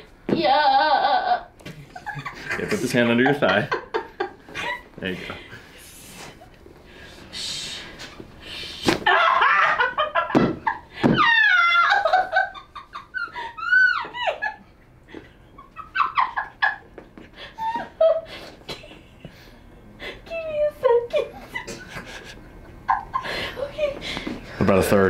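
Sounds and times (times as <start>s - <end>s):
person squealing and crying out: 0.4s - 1.5s, 11.0s - 12.3s, 13.4s - 14.4s
person laughing: 0.4s - 5.3s, 20.9s - 24.0s.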